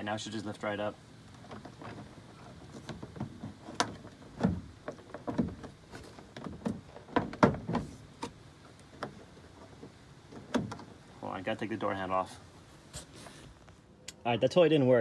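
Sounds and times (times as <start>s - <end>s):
plastic door panel rattling: 1.4s - 8.4s.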